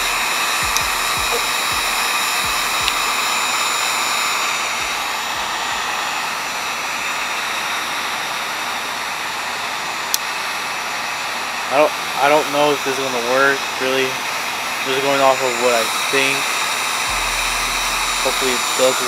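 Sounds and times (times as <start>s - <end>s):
heat gun blowing air: 0.0s - 19.0s.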